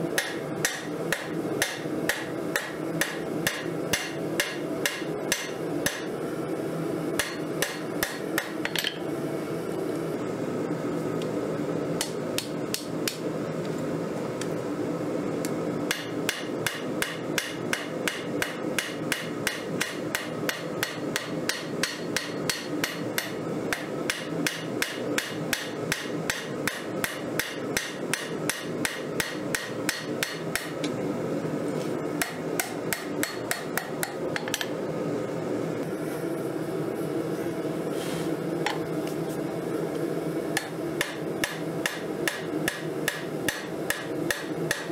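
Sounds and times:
steady low hum: 0.0 - 44.9
hammer striking steel on anvil: 0.2 - 6.1, 7.2 - 9.0, 15.9 - 30.8, 32.2 - 34.7, 40.6 - 44.9.

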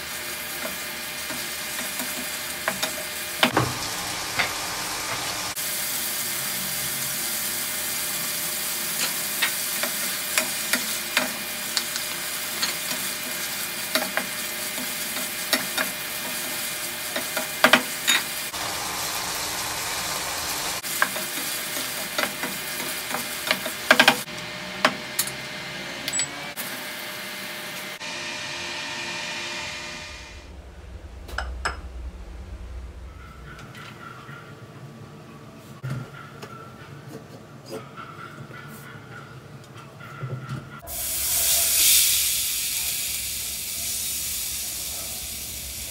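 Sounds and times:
meat sizzling in frying pan: 0.0 - 24.3, 40.9 - 45.9.

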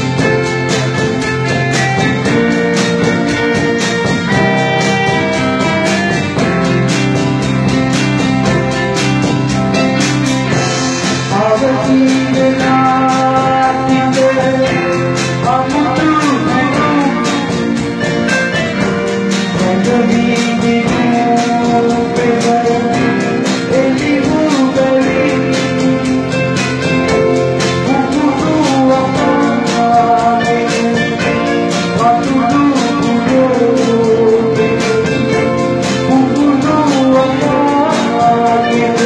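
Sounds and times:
drum kit beat: 0.0 - 39.0
electric guitar: 0.0 - 39.0
electronic keyboard melody: 0.0 - 39.0.

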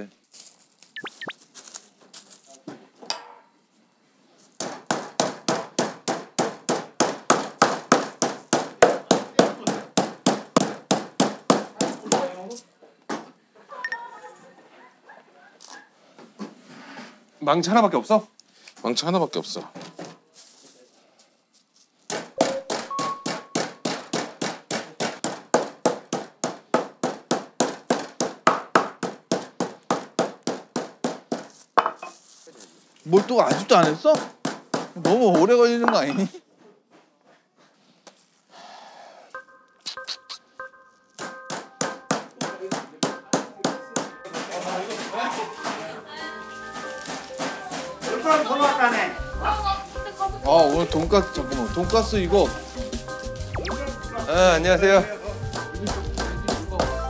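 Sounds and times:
meat mallet pounding on board: 4.6 - 12.3, 22.1 - 31.5, 33.6 - 35.6.

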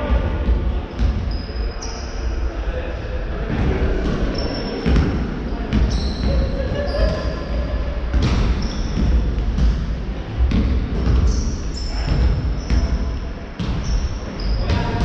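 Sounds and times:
sneaker squeaks: 0.9 - 2.3, 4.2 - 9.4, 11.0 - 15.0
basketball bouncing on wooden floor: 10.5 - 11.4.

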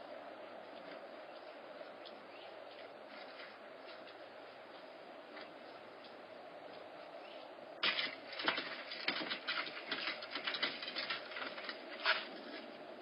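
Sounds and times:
kittens scampering on wooden deck: 7.8 - 13.0.

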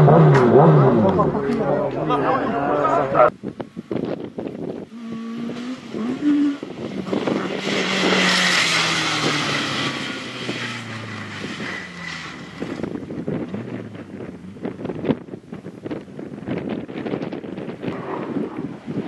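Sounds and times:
car engine running hard: 0.0 - 19.0
tyres skidding: 4.4 - 19.0.

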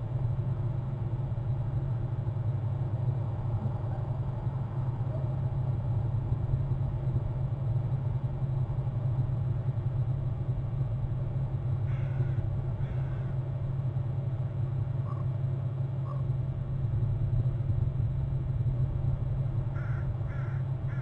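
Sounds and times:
steady low rumble: 0.0 - 21.0
crow cawing: 11.9 - 13.4, 19.8 - 21.0.

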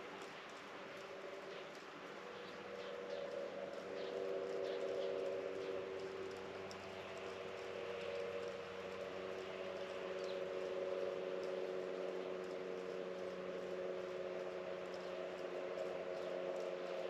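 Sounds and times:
droning hum: 0.0 - 17.0.

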